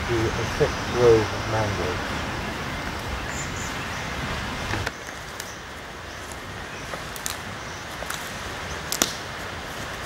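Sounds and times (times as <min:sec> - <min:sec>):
steady outdoor hiss: 0:00.0 - 0:10.0
footsteps on dry leaves and twigs: 0:04.7 - 0:10.0.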